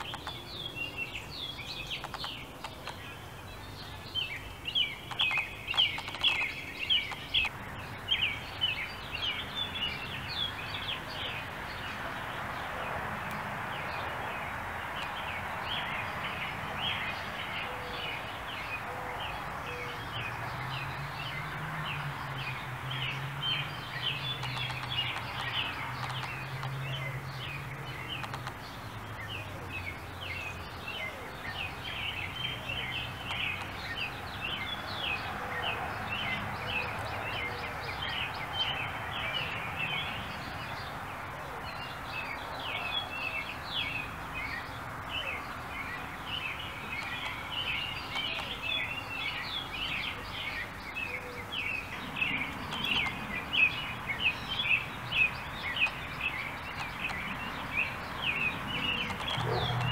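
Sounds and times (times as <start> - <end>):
small birds chirping: 0.0 - 59.9.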